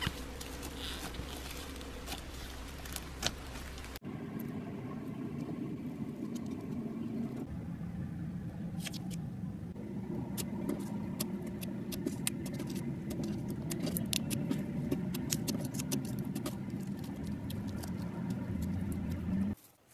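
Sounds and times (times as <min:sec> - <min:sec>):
wet slime squishing: 0:10.4 - 0:19.6.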